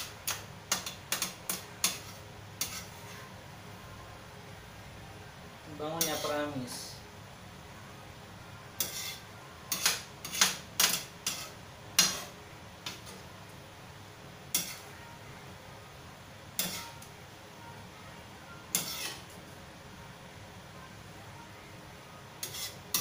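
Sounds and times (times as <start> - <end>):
metal utensils clinking on wok: 0.0 - 3.0, 5.9 - 6.8, 8.8 - 13.2, 14.5 - 14.8, 16.6 - 17.1, 18.7 - 19.2, 22.4 - 23.0.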